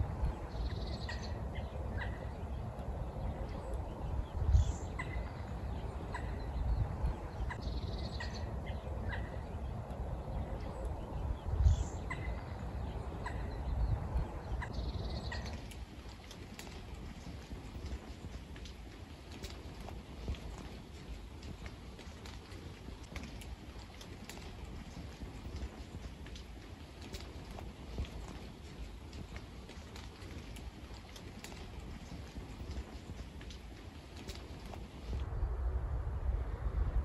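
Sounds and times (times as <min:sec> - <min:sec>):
steady low rumble: 0:00.0 - 0:37.0.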